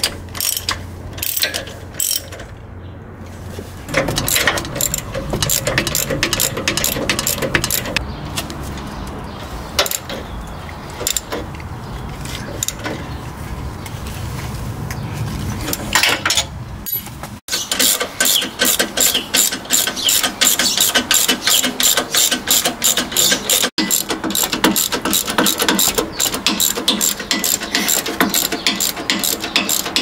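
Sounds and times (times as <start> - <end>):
hand ratchet clicking: 0.0 - 2.4, 4.0 - 8.0, 17.6 - 30.0.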